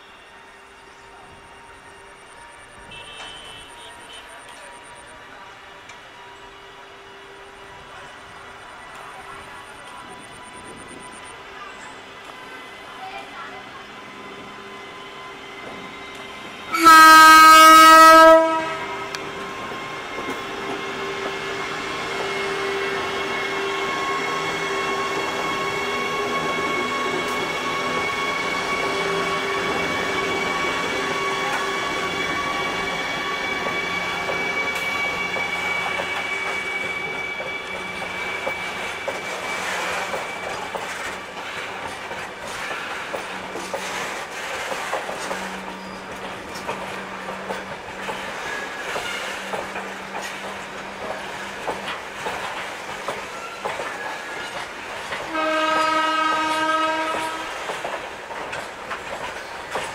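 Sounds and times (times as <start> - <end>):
locomotive horn blast: 2.7 - 4.5, 16.7 - 19.2, 55.2 - 57.7
wagon wheels clattering over rail joints: 37.7 - 55.3, 57.1 - 59.9.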